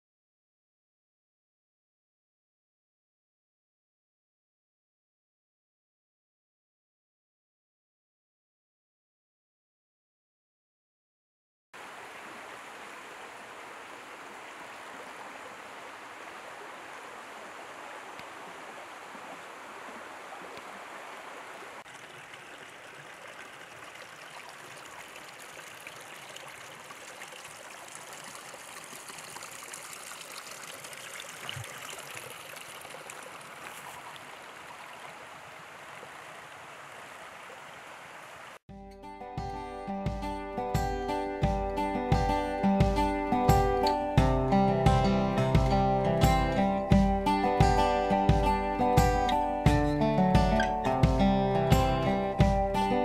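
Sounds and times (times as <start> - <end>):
mountain stream flowing: 11.8 - 38.6.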